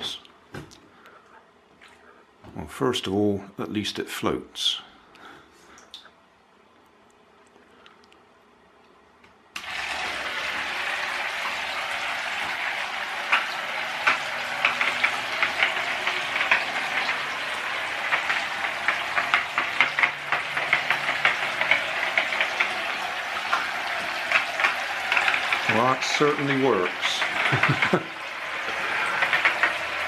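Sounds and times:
paddle wheels churning water: 9.6s - 30.0s
water splashing: 9.6s - 30.0s.

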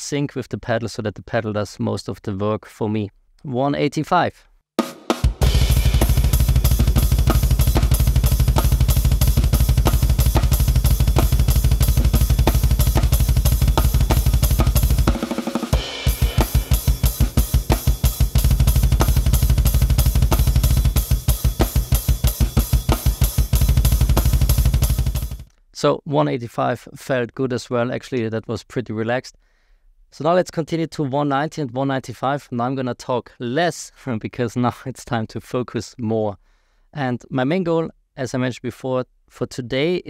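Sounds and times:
snare drum: 4.8s - 25.5s
cymbals: 4.9s - 25.4s
fast double bass drum strokes: 5.2s - 25.5s.

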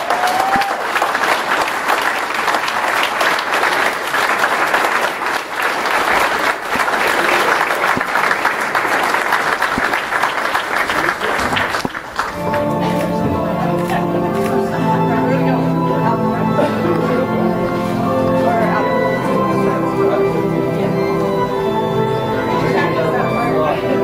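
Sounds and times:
audience applauding: 0.0s - 14.9s.

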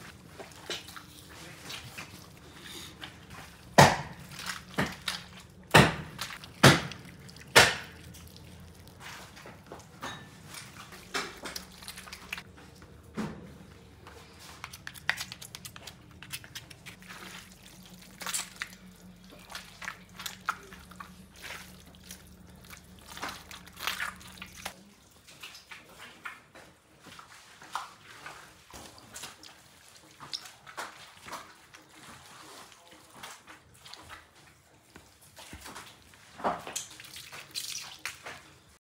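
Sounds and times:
low steady hum: 0.0s - 25.2s
hands squelching raw meat: 0.1s - 12.6s, 14.2s - 25.8s, 35.0s - 38.6s.

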